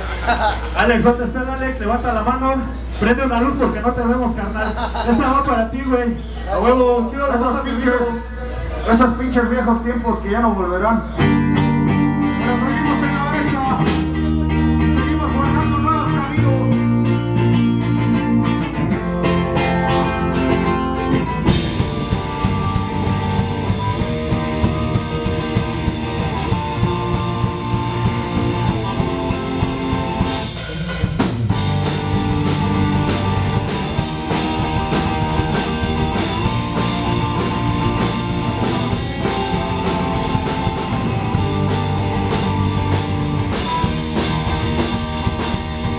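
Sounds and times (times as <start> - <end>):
electric bass: 0.0 - 45.9
electric guitar: 11.0 - 45.9
drum kit: 11.2 - 45.9.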